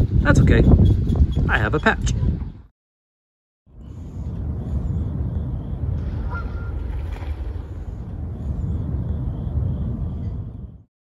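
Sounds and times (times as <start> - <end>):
low steady rumble: 3.7 - 10.8
honking bird calls: 6.2 - 6.8.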